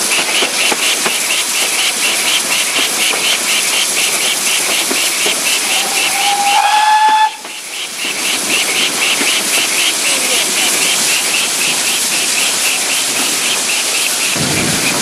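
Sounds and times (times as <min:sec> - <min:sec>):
steam hiss: 0:00.0 - 0:15.0
steam locomotive chuffing: 0:00.0 - 0:15.0
steam whistle: 0:05.5 - 0:07.5.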